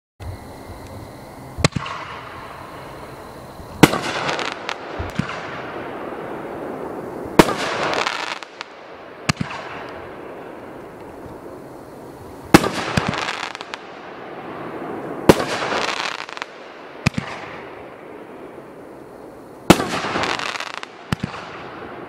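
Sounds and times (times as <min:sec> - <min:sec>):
firework hiss: 0:00.2 - 0:22.0
firework bangs: 0:01.6 - 0:02.9, 0:03.8 - 0:11.6, 0:12.4 - 0:18.6, 0:19.6 - 0:22.0
small firework pops: 0:03.8 - 0:05.5, 0:09.3 - 0:10.0, 0:15.0 - 0:17.6, 0:19.7 - 0:21.7.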